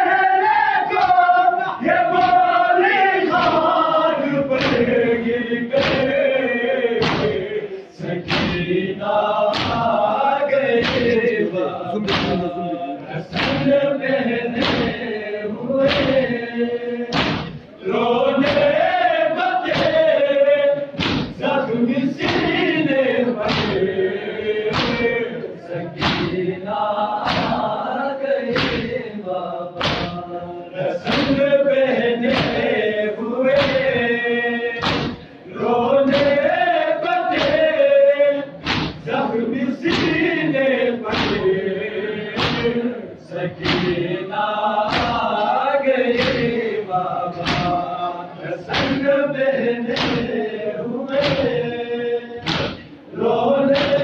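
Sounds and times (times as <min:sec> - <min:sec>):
men chanting in unison: 0:00.0 - 0:54.0
chest beating thuds: 0:08.2 - 0:08.8, 0:09.5 - 0:09.9, 0:10.8 - 0:11.3, 0:12.0 - 0:12.6, 0:17.1 - 0:17.6, 0:26.0 - 0:26.4, 0:34.8 - 0:35.3, 0:38.6 - 0:39.1, 0:52.4 - 0:52.9.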